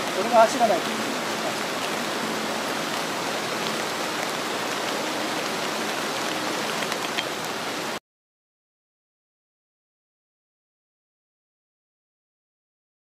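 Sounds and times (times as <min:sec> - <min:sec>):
heavy rain hiss: 0:00.0 - 0:08.0.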